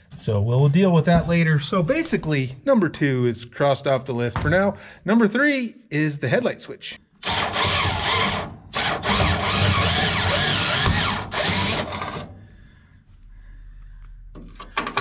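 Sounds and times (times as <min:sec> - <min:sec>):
cordless drill boring sheet metal: 0:07.2 - 0:12.4.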